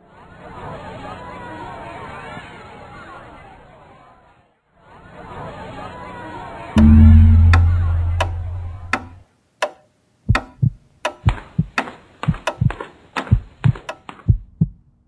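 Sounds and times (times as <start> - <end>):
low boom: 6.8 - 9.2.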